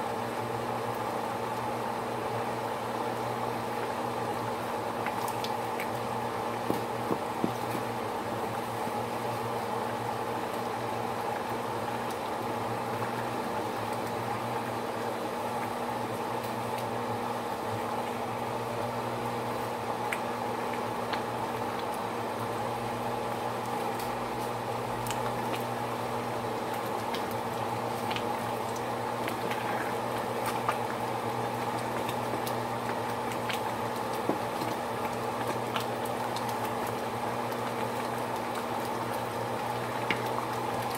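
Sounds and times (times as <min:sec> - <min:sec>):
pot of water boiling: 0:00.0 - 0:40.9.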